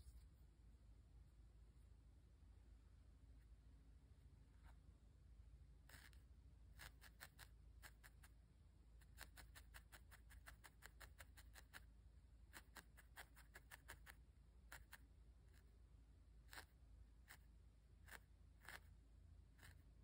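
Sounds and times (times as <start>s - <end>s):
felting needle poking wool: 5.8s - 8.4s, 9.0s - 20.0s.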